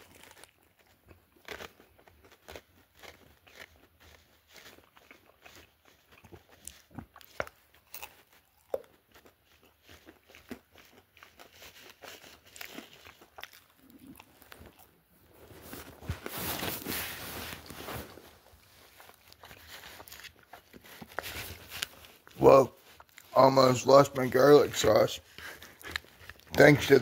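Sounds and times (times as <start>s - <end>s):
rustling and crinkling: 10.8s - 27.0s.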